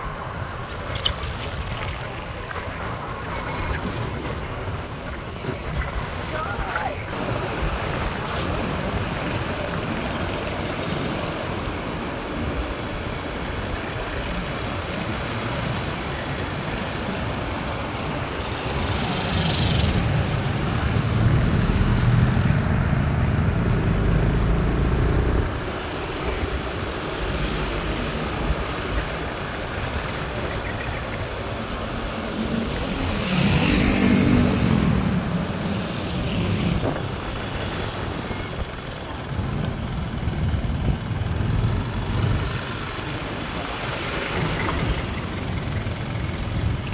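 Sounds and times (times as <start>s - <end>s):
passing cars: 0.0s - 46.9s.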